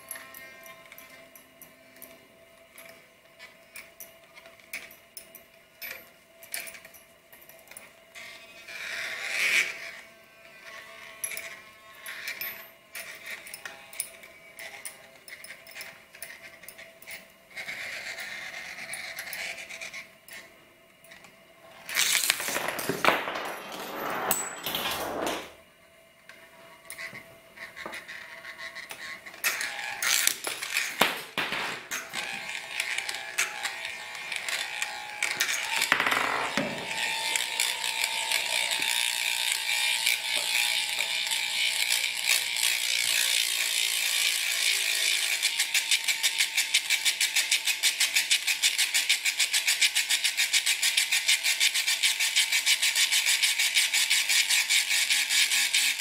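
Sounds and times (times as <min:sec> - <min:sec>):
spinning tops scraping on glass: 0:21.7 - 0:25.6, 0:26.9 - 0:56.0.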